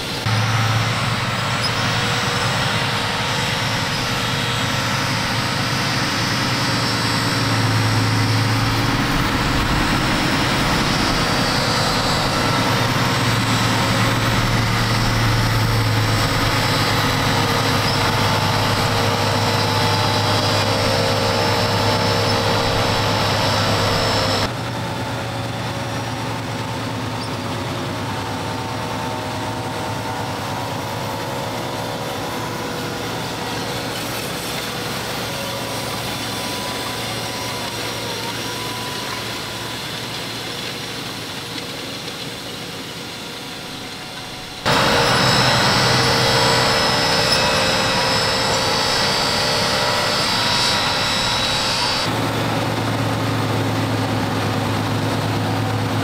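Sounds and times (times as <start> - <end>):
high whine: 0.0 - 24.5, 42.3 - 56.0
tractor diesel engine under load: 0.0 - 56.0.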